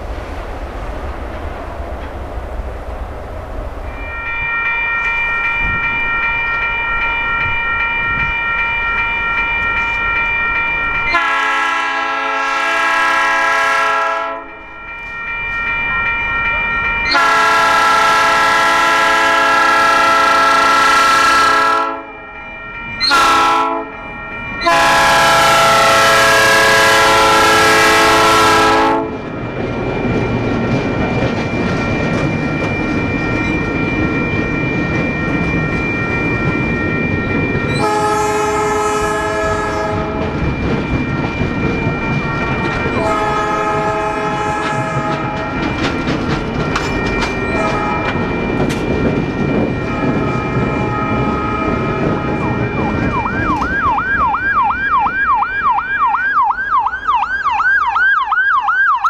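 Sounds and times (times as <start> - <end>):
train running noise: 0.0 - 59.0
bell ringing steadily: 3.9 - 12.6, 14.1 - 58.6
locomotive air horn blasts: 11.1 - 14.5, 17.1 - 22.1, 23.0 - 23.9, 24.6 - 29.2, 37.8 - 40.2, 43.0 - 45.4, 47.5 - 48.1, 49.9 - 52.4.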